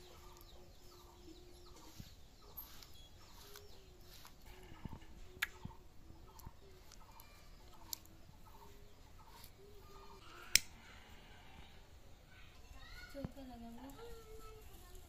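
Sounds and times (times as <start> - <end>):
sharp clicks: 10.2 - 10.8.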